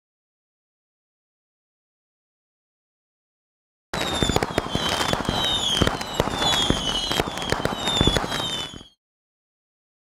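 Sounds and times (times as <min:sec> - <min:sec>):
fireworks crackling pops: 0:04.0 - 0:09.0
fireworks falling whistles: 0:04.0 - 0:09.0.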